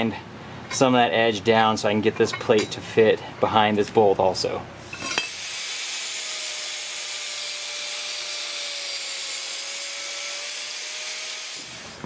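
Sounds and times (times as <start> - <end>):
angle grinder grinding steel: 4.9 - 12.0.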